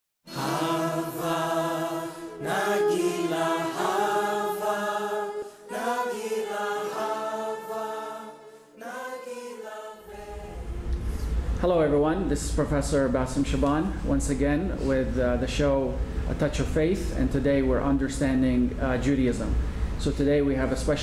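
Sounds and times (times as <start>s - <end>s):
chanted vocal music: 0.3s - 12.3s.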